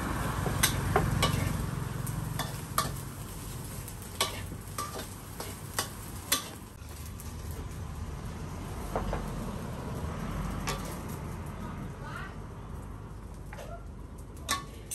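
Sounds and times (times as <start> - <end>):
rice sizzling: 0.0 - 14.9
metal spatula scraping a wok: 0.1 - 6.8, 10.6 - 11.1.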